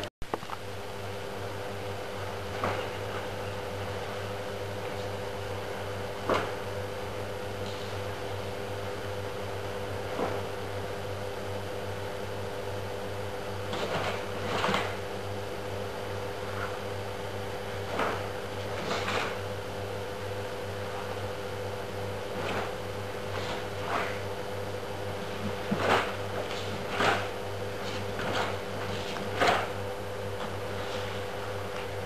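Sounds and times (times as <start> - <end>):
room hum: 0.0 - 32.0
swishes of martial arts moves: 17.8 - 19.4, 22.3 - 24.2, 25.2 - 29.8.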